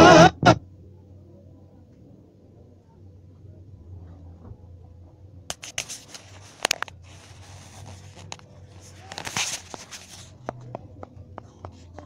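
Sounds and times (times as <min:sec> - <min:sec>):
low steady hum: 0:00.0 - 0:12.0
rustling scrape: 0:05.5 - 0:10.4.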